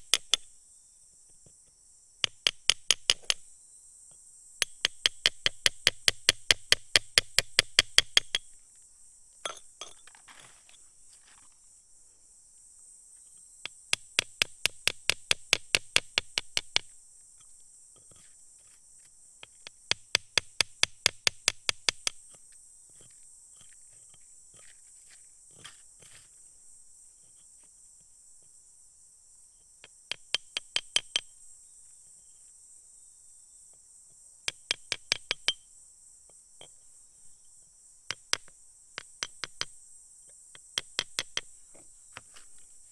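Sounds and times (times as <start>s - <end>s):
high insect chirr: 0.0s - 42.9s
metal chisel clinking on crystal: 9.4s - 10.1s, 34.7s - 35.6s.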